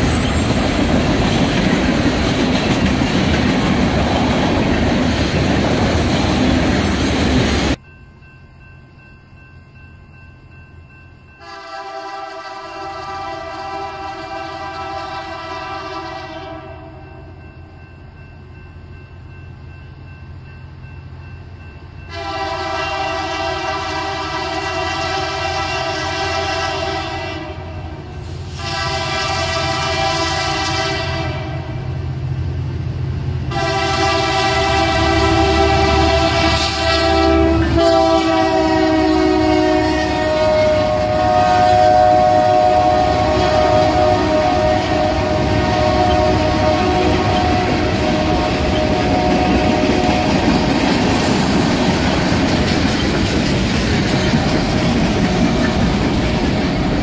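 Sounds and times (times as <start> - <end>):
locomotive horn blasts: 11.4 - 17.4, 22.1 - 31.9, 33.5 - 50.6.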